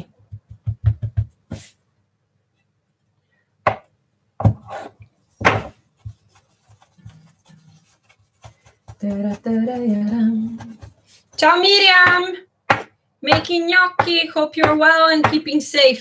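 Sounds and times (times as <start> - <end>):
hands knocking dough on counter: 0.0 - 1.7, 5.4 - 6.4.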